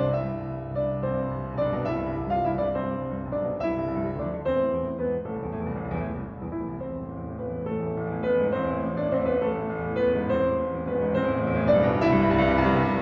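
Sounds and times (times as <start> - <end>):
slow piano melody: 0.0 - 13.0.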